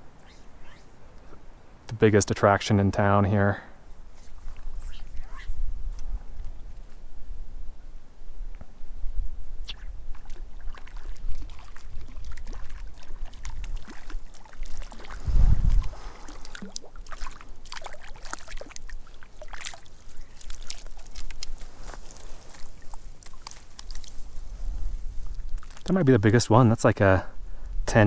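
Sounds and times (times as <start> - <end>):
water splashing and dripping: 10.1 - 24.4, 25.2 - 26.0.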